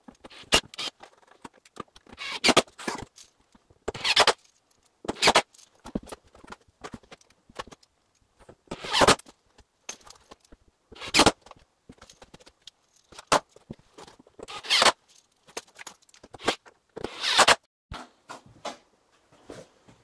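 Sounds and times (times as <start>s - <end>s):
metallic jingling and rattling: 4.3s - 8.4s, 9.2s - 10.6s, 11.9s - 16.4s.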